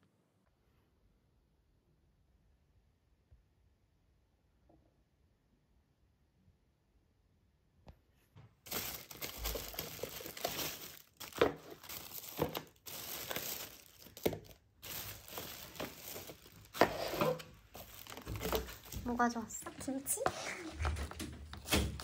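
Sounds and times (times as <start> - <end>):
packaging crinkling and rustling: 8.7 - 22.0.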